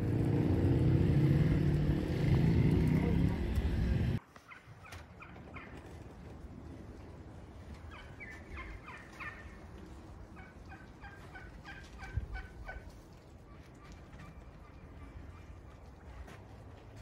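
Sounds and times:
turkeys calling: 4.3 - 6.1, 7.8 - 16.0.

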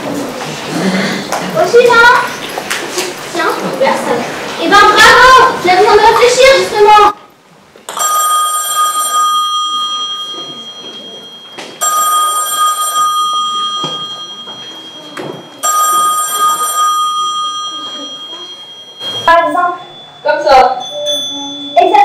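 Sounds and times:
bell-like ringing: 7.9 - 22.0.

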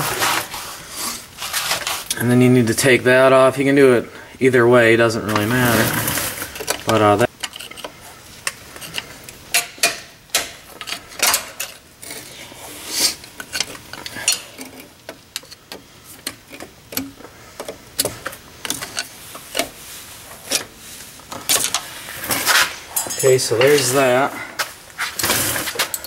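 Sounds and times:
metallic clicks and scrapes: 5.3 - 26.0.

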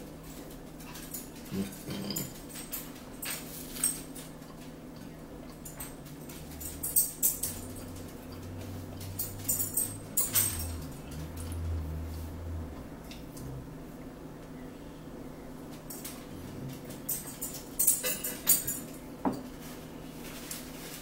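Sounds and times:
low hum: 4.6 - 17.8.

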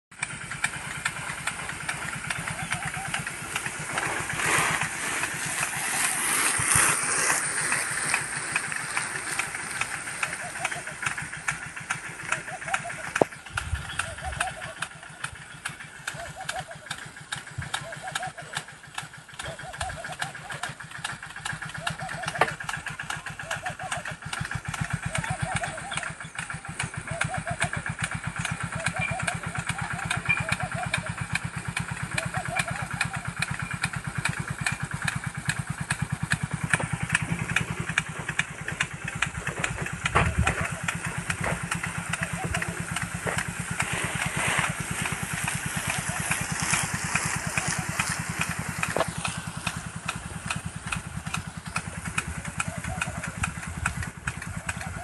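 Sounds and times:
irrigation gun throbbing: 0.1 - 55.0
sharp ticks: 0.1 - 55.0
small engine putter: 0.1 - 55.0
rush of water spray: 0.6 - 13.1, 40.8 - 53.7.

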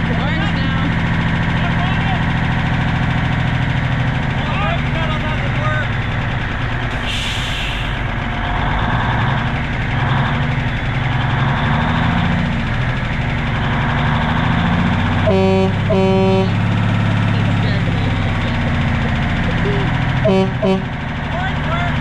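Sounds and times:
diesel engine running: 0.0 - 22.0
horn blasts: 15.2 - 17.8, 20.2 - 21.5.

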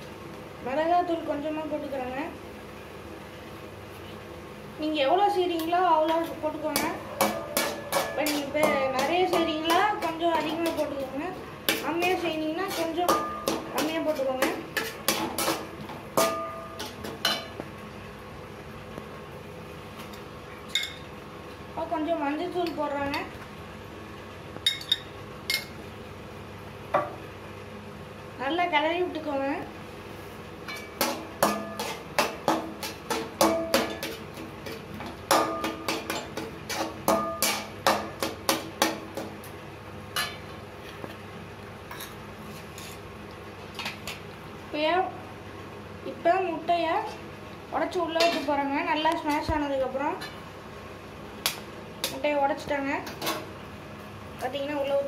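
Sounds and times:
metal spatula clanging on pan: 6.1 - 17.6, 30.7 - 39.3.

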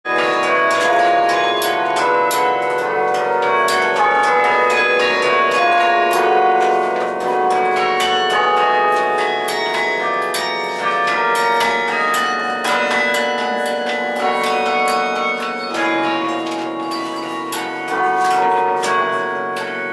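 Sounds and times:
carillon bells ringing: 0.0 - 19.9.

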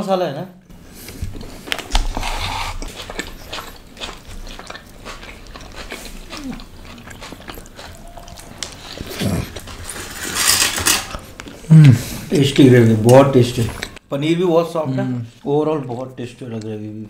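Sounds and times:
person chewing food: 0.7 - 14.0.

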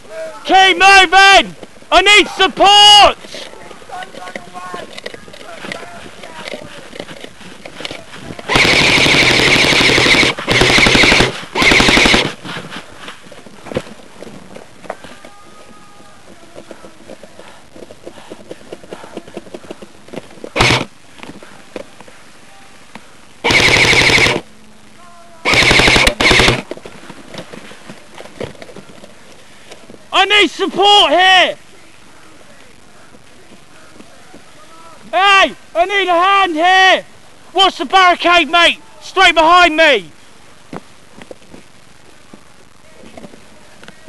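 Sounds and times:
airsoft rifle automatic fire: 8.5 - 12.4, 20.5 - 20.9, 23.4 - 24.4, 25.4 - 26.7.

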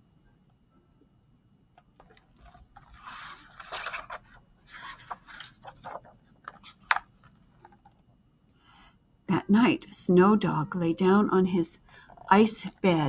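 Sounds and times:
paper rustling and sliding: 2.0 - 7.8.

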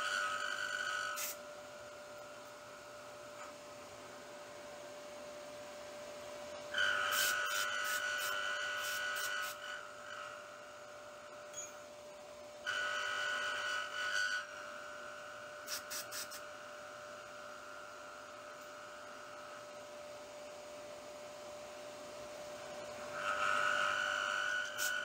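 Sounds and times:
milling machine humming: 0.0 - 25.0
air blow gun hissing: 1.1 - 1.4, 6.9 - 9.6, 15.6 - 16.5, 23.2 - 25.0.

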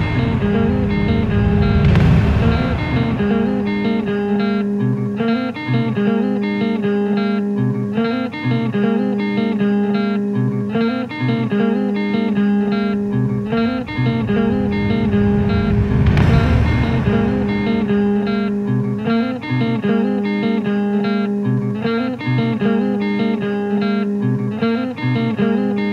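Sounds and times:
long held low tones: 0.0 - 4.7, 12.8 - 19.1
plucked guitar notes: 0.0 - 25.9.

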